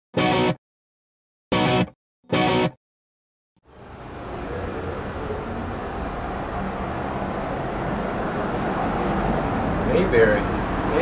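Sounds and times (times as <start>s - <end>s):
traffic rumble: 3.7s - 11.0s.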